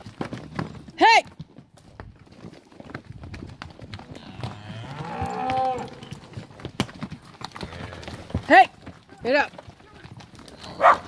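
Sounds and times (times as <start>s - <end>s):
hooves clattering on rocky ground: 0.0s - 11.0s
cow mooing: 4.0s - 6.3s.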